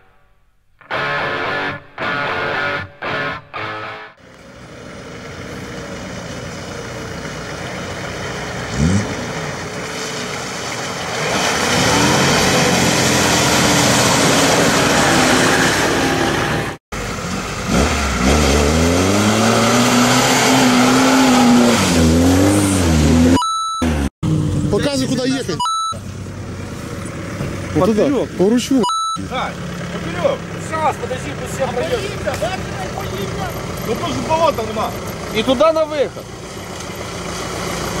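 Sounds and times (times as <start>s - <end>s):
suv engine pulling under load: 4.2s - 23.2s, 29.2s - 38.0s
wheels churning through mud: 4.2s - 23.4s, 24.3s - 38.0s
engine revving: 5.3s - 25.5s
water splashing: 9.4s - 16.2s.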